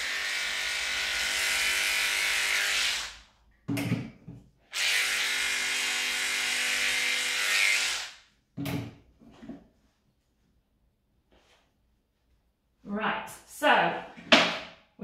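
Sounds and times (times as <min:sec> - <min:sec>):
electric clippers running: 0:00.0 - 0:03.2, 0:04.7 - 0:08.1.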